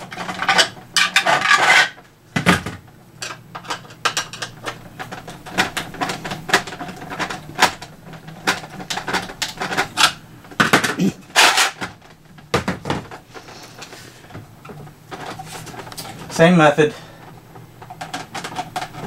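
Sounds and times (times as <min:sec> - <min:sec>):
plastic toy parts knocking: 0:00.0 - 0:13.2, 0:17.8 - 0:19.0.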